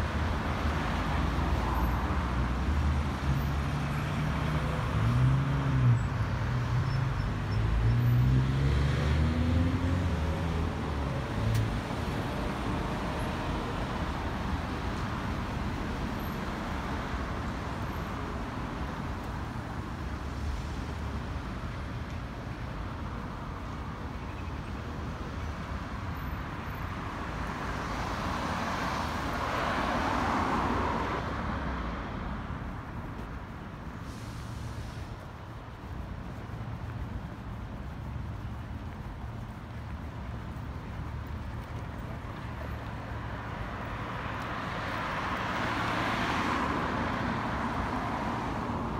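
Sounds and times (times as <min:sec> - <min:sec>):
cars passing on busy street: 0:00.0 - 0:48.9
car passing close by: 0:07.6 - 0:13.2
vehicle accelerating away: 0:07.8 - 0:10.5.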